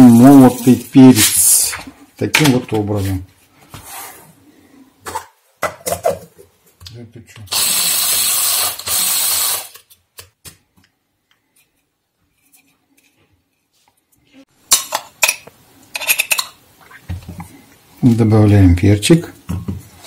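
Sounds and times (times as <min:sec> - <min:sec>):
electric spice grinder grinding: 0:07.5 - 0:09.8.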